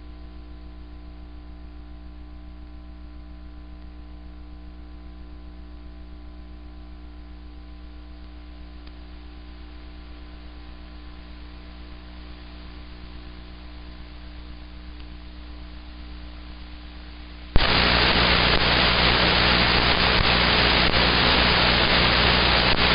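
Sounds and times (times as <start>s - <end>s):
loud static hiss: 7.8s - 22.9s
radio carrier hum: 17.6s - 22.9s.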